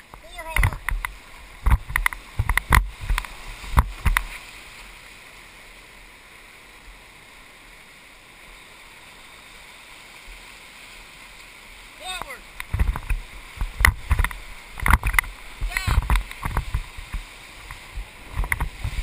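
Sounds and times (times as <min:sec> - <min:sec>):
river rapids rushing: 0:00.0 - 0:19.0
sharp knocks on raft: 0:12.6 - 0:17.2.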